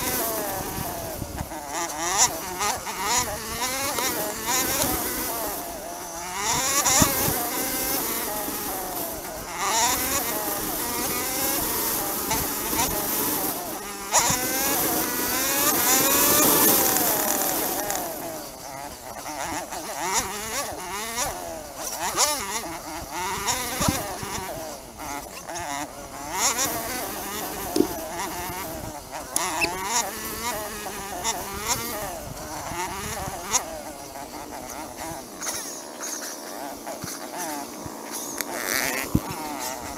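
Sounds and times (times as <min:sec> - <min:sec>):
dirt bike engine buzzing: 0:00.0 - 0:39.9
bike knocks and rattles: 0:27.5 - 0:28.6.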